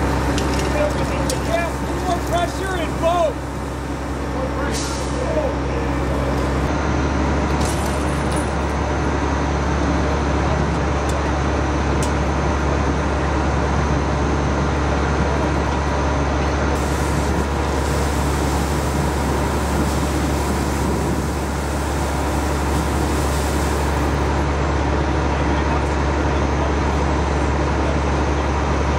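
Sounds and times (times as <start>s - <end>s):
diesel engine running: 0.0s - 28.9s
rushing hiss: 16.8s - 24.4s.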